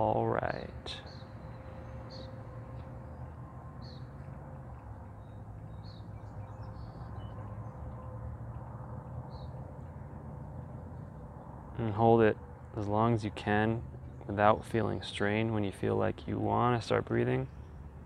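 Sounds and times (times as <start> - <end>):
bird chirping: 0.9 - 8.1, 9.2 - 9.9.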